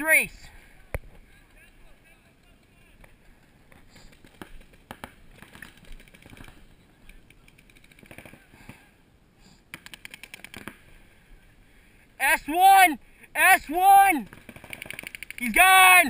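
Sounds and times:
paintball markers firing: 0:03.8 - 0:06.6, 0:09.7 - 0:10.8, 0:14.3 - 0:15.6.

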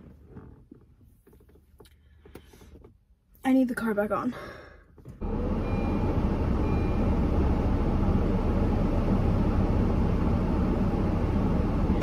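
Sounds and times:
car engine idling: 0:05.2 - 0:12.0.

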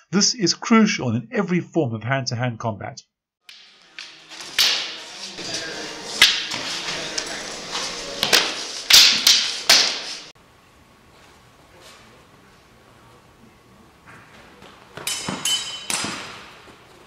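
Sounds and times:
wooden swords clacking: 0:03.5 - 0:10.3, 0:15.0 - 0:16.6.

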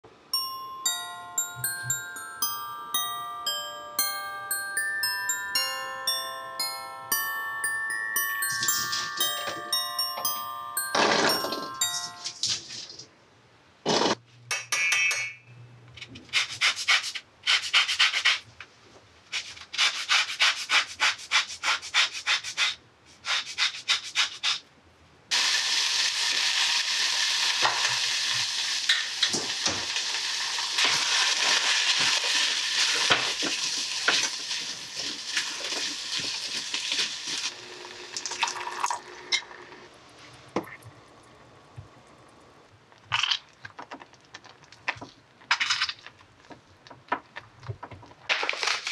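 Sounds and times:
sizzling in saucepan: 0:25.3 - 0:39.0.

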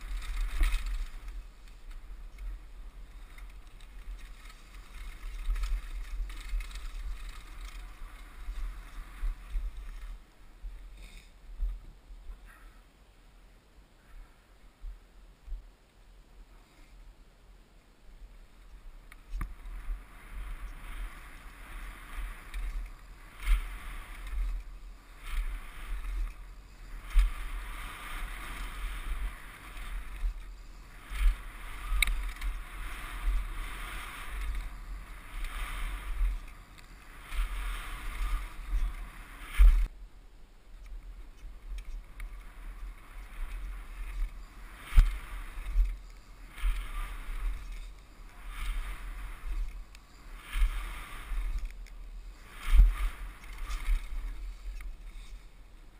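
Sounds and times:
tyres rolling on gravel: 0:00.0 - 0:10.2, 0:19.2 - 0:39.9
bike rattling: 0:00.0 - 0:11.7, 0:18.5 - 0:40.0, 0:40.7 - 0:55.9
wind buffeting microphone: 0:00.0 - 0:12.5, 0:18.7 - 0:40.0, 0:41.1 - 0:55.9.

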